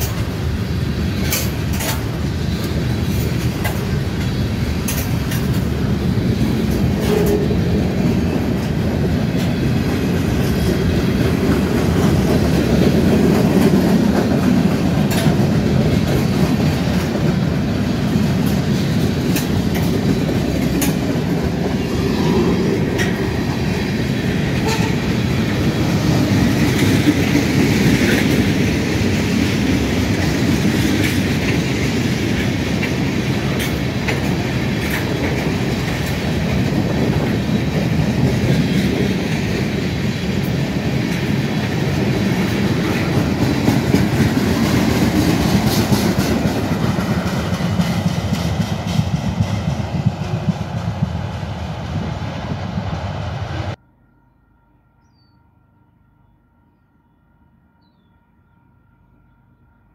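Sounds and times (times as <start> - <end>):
wheels clicking over rail joints: 0.0 - 51.0
freight train wheels rumbling: 0.0 - 53.8.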